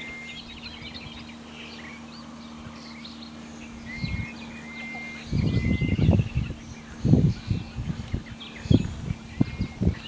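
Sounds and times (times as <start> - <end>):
bird whistles: 0.0 - 1.1, 3.8 - 6.9
small birds chirping: 0.0 - 10.0.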